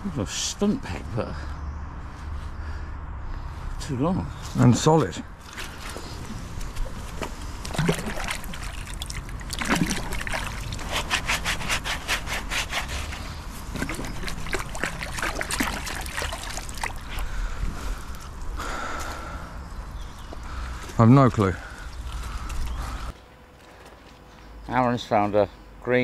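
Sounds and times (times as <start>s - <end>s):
splashing and swishing water: 5.4s - 7.0s, 7.6s - 11.5s, 13.6s - 17.3s.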